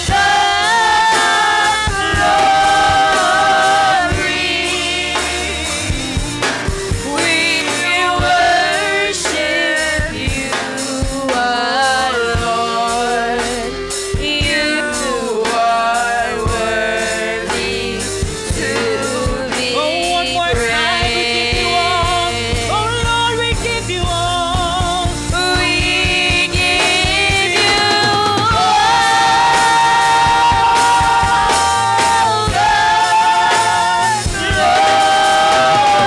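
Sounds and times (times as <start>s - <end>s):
drum kit beat: 0.0s - 36.0s
live band playing: 0.0s - 36.0s
women singing gospel: 0.0s - 36.0s.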